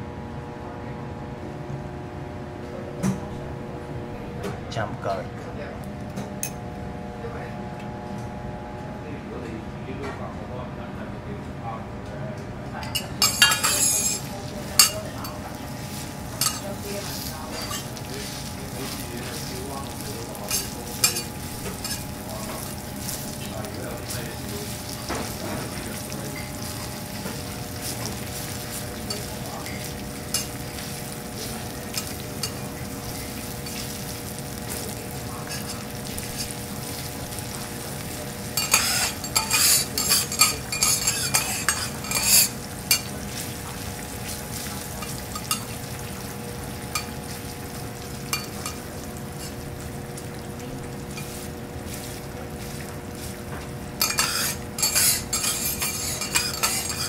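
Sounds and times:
metal utensils scraping and clinking: 0:12.8 - 0:34.0, 0:34.8 - 0:43.5, 0:44.9 - 0:45.8, 0:48.3 - 0:49.6, 0:54.0 - 0:57.0
food sizzling on a griddle: 0:13.0 - 0:57.0.

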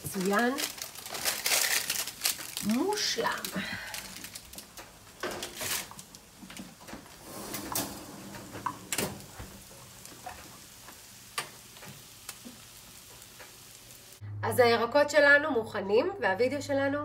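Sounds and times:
faint steady hiss: 0:01.7 - 0:14.2.

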